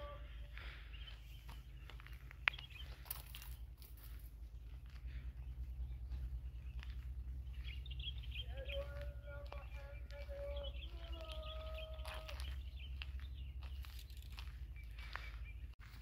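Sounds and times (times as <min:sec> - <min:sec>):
long steady-pitched tones: 0:00.0 - 0:01.3
small birds chirping: 0:00.0 - 0:16.0
steady low rumble: 0:00.0 - 0:16.0.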